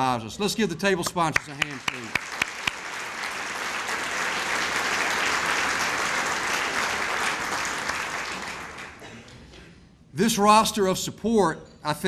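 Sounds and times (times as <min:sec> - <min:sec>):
audience applauding: 0:01.3 - 0:09.1.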